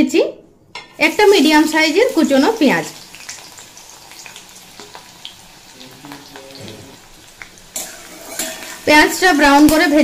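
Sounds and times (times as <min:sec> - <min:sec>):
onion sizzling in oil: 0:00.9 - 0:10.0
spatula scraping pan: 0:07.7 - 0:09.5.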